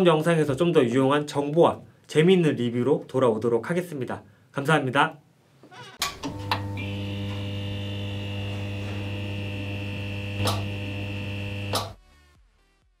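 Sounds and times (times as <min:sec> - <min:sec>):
neon sign crackling: 0:06.0 - 0:12.0
neon sign electric hum: 0:06.0 - 0:12.0.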